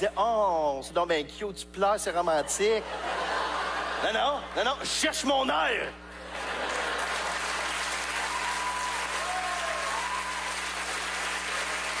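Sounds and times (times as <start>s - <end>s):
audience applauding: 6.4s - 12.0s.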